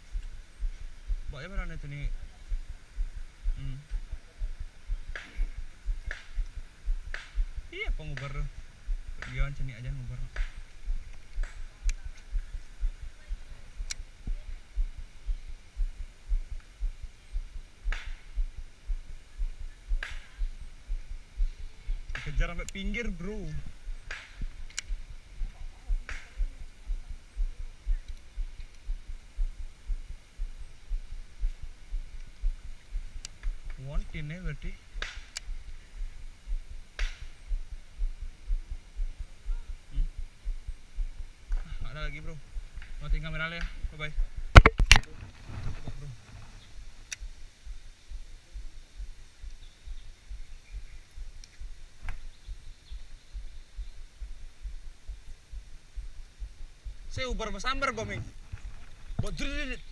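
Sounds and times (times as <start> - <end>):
low irregular thumping: 0.0 - 59.9
sharp clicks: 13.8 - 14.1, 21.9 - 25.2, 33.1 - 35.8, 42.2 - 45.2, 47.0 - 47.3.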